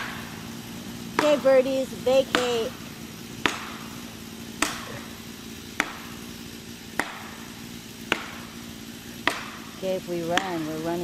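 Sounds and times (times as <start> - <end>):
maul striking wedge: 3.4 - 6.2, 6.9 - 8.6, 9.2 - 10.8.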